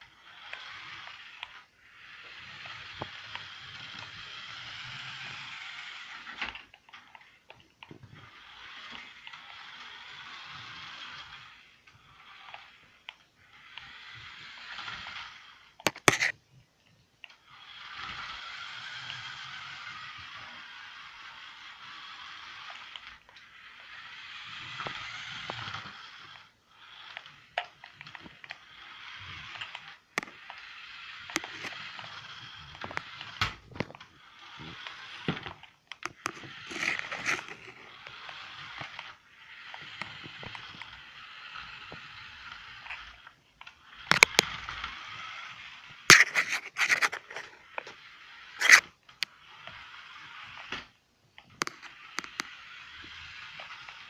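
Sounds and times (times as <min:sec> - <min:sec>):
toy car electric motor whirring: 0:00.0 - 0:54.0
sharp clicks and knocks: 0:15.8 - 0:16.3, 0:51.5 - 0:52.5.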